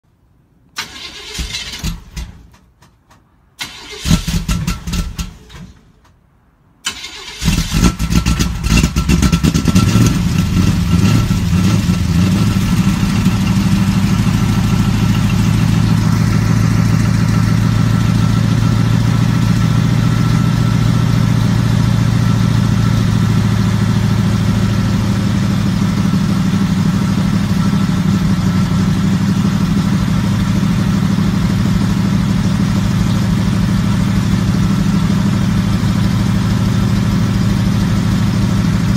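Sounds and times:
engine cranking: 0.8s - 3.0s
car engine revving and idling: 7.4s - 38.9s.

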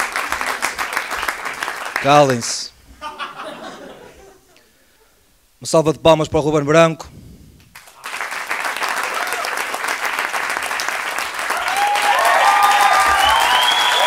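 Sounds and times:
audience applauding: 0.0s - 2.6s, 7.8s - 14.0s
voices whooping and cheering: 11.5s - 14.0s.

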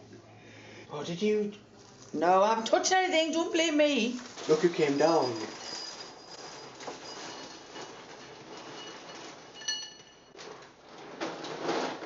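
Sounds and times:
handling sounds: 3.8s - 12.0s
spoon clinking ceramic bowl: 9.6s - 10.2s.

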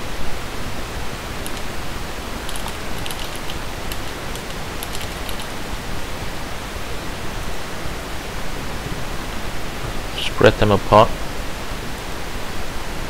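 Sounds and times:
steady hiss: 0.1s - 13.0s
computer keyboard keystrokes: 1.4s - 1.7s, 2.4s - 5.6s.

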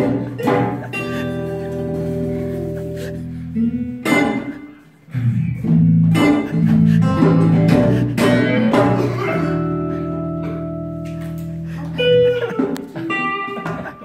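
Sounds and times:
percussive hits: 0.0s - 1.1s, 5.6s - 9.3s
low bass notes: 0.0s - 4.4s, 5.0s - 12.6s
acoustic band playing: 0.0s - 14.0s
strummed guitar chords: 0.0s - 14.0s.

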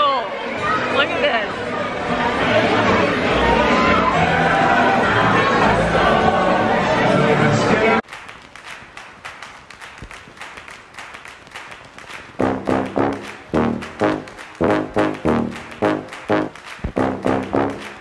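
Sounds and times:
loud brass notes: 12.4s - 18.0s
quiet pulsing beat: 12.4s - 18.0s.

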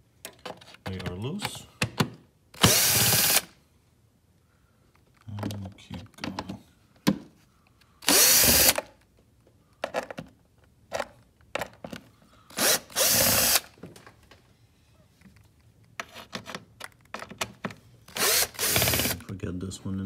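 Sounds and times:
power driver spinning screws: 2.6s - 3.5s, 8.0s - 8.8s, 12.6s - 13.7s, 18.1s - 19.2s.

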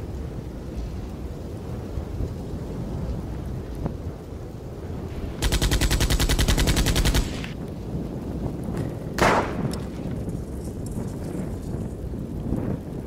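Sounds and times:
automatic weapon burst: 5.4s - 7.6s
single sharp gunshot: 9.2s - 9.8s.

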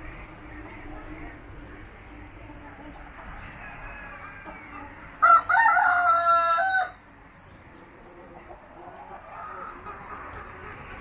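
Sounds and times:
hens clucking softly: 2.5s - 11.0s
rooster crowing: 3.5s - 7.0s.

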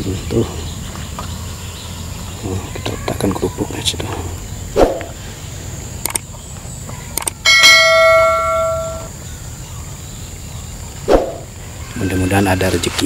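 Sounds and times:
quick clicks: 6.0s - 6.3s, 7.2s - 7.4s
bright bell ding: 7.5s - 9.1s.

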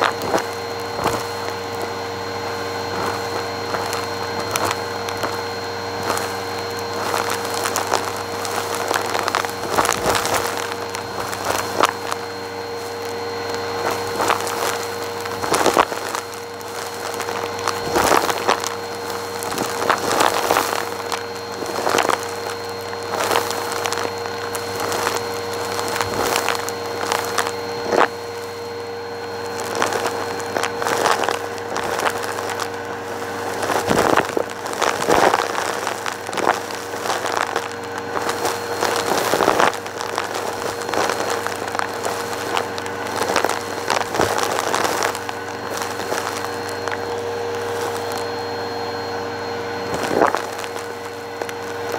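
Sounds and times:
debris crackling up vacuum hose: 0.0s - 51.9s
vacuum cleaner running: 0.0s - 51.9s.

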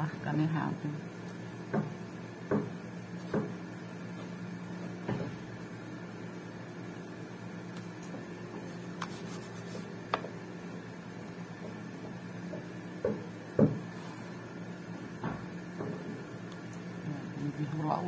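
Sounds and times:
knocks on tabletop: 1.7s - 1.9s, 2.5s - 3.6s, 13.0s - 13.8s.

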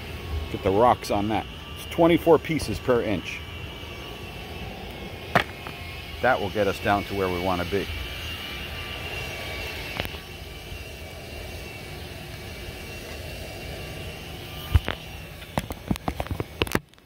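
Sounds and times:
floor sander droning: 0.0s - 16.8s
sharp knocks: 5.3s - 5.7s.

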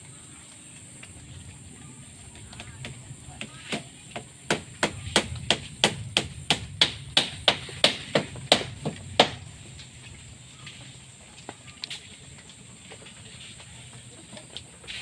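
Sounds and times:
sharp knocks: 3.7s - 9.5s.

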